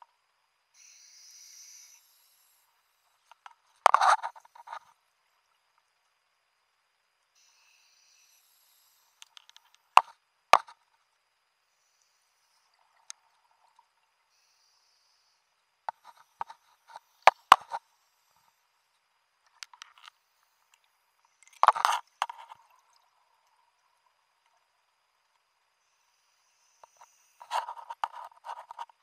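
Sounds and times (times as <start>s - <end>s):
regulator hiss on inhale: 0.7s - 3.6s, 7.4s - 10.0s, 11.6s - 18.8s, 25.7s - 29.0s.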